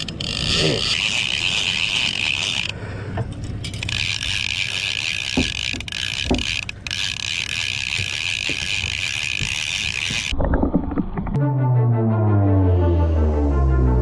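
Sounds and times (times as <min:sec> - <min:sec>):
fishing reel clicker buzzing: 0:00.0 - 0:02.8, 0:03.6 - 0:10.4
outboard engine low rumble: 0:00.0 - 0:14.0.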